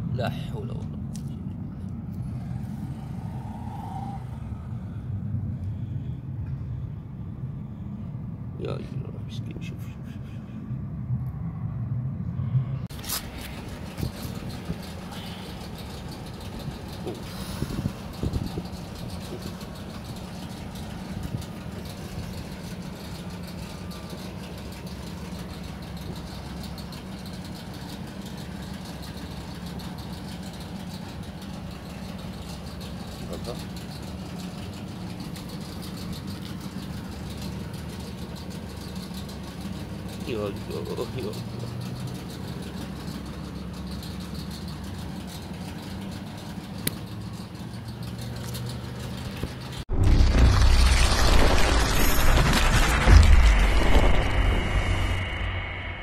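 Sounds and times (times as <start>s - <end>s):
low engine hum: 0.0s - 56.0s
brief loud bump: 49.9s - 56.0s.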